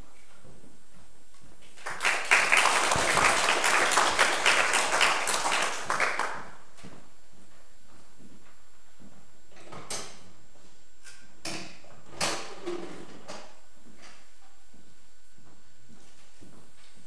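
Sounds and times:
audience applause: 1.8 - 6.6.

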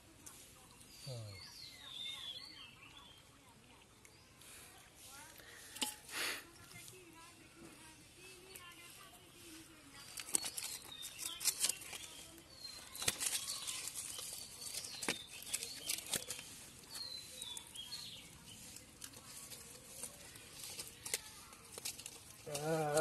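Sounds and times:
faint bird chirps: 0.3 - 4.4
leaves rustling: 7.8 - 23.0.

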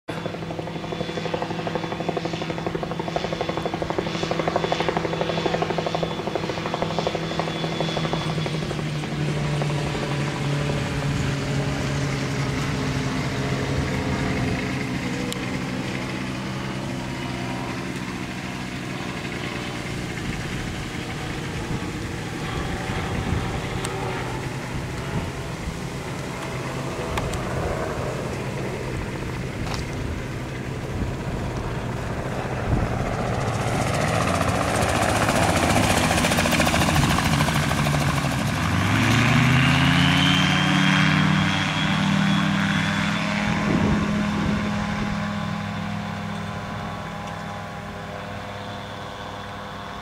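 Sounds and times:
autogyro engine and propeller drone: 0.1 - 50.0.

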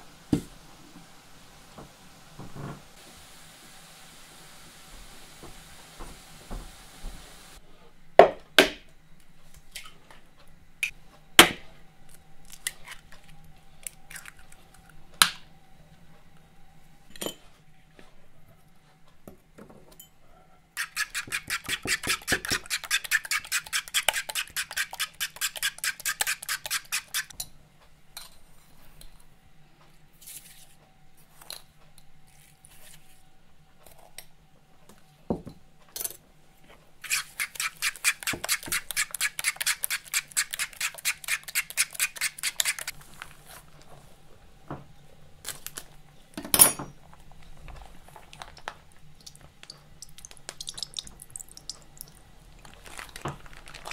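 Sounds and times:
fork beating eggs in bowl: 20.8 - 27.4, 37.0 - 43.0
eggs cracked on bowl rim: 48.5 - 52.2.

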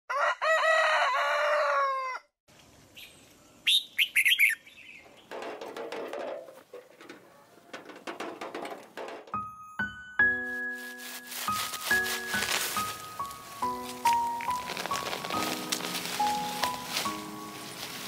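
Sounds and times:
rooster crowing: 0.1 - 2.3
high bird chirps: 3.0 - 5.3.

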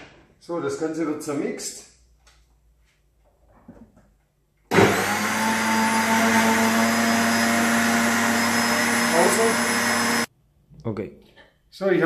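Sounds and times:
blender motor whirring: 4.7 - 10.3.

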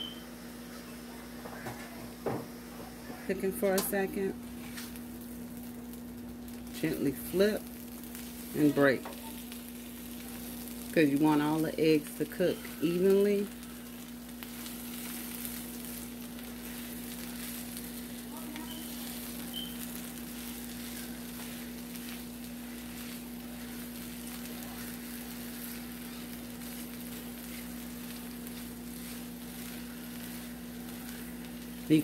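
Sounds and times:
potatoes and eggs sizzling: 0.0 - 32.0
steady low hum: 0.0 - 32.0
spatula stirring in pan: 8.1 - 32.0.

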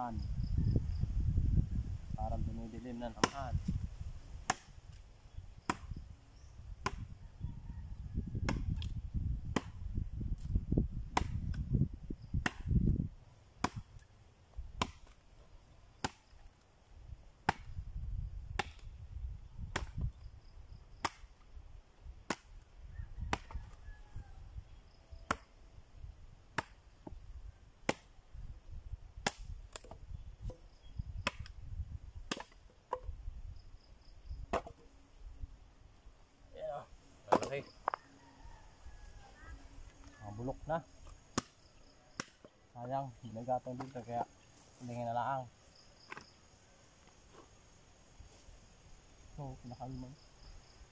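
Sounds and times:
machete chopping wood: 3.1 - 3.4, 4.4 - 5.0, 5.6 - 6.0, 6.8 - 7.1, 8.4 - 8.9, 9.5 - 9.8, 11.1 - 11.6, 12.4 - 12.9, 13.6 - 14.0, 14.8 - 15.2, 16.0 - 16.5, 17.4 - 17.8, 18.5 - 18.9, 19.7 - 20.1, 21.0 - 21.4, 22.2 - 22.6, 23.3 - 23.6, 25.2 - 25.5, 26.5 - 27.2, 27.8 - 28.2, 29.2 - 30.6, 31.2 - 31.5, 32.3 - 33.1, 34.5 - 34.9, 37.3 - 37.7, 41.3 - 42.5, 46.1 - 46.3.

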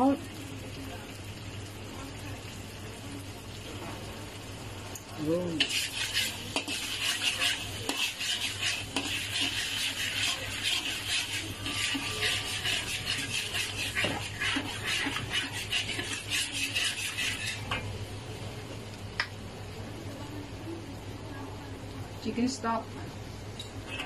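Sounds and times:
metal fork scraping a wok: 5.6 - 17.8.

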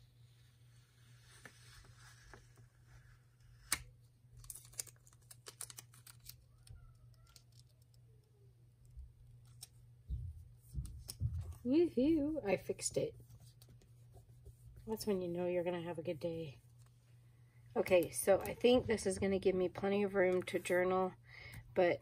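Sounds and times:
sticker peeling crinkles and clicks: 3.6 - 8.0.

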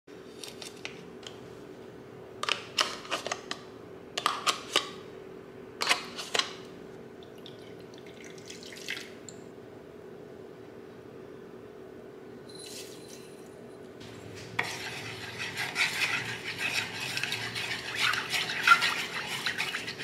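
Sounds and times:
water pouring into bowl: 7.4 - 9.2
steady hum: 9.2 - 20.0
spoon scraping plastic cup: 14.0 - 20.0.

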